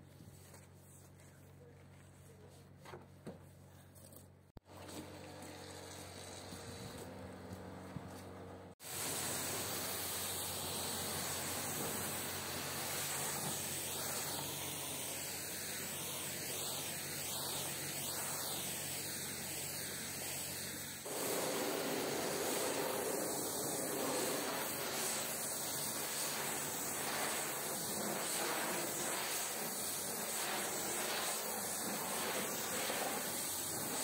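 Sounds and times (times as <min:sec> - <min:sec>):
pressure washer jet hissing: 0:08.8 - 0:34.0.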